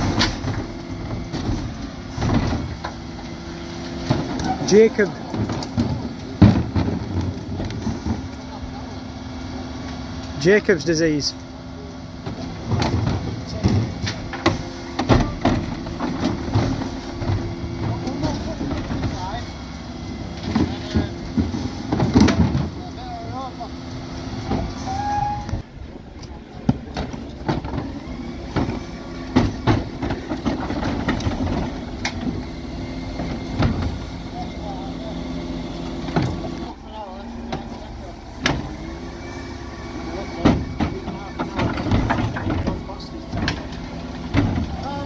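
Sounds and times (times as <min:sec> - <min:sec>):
bin lift knocks and bangs: 0:00.0 - 0:03.0, 0:12.3 - 0:19.3, 0:20.5 - 0:22.8, 0:26.6 - 0:32.4
truck engine and hydraulics hum: 0:00.0 - 0:45.0.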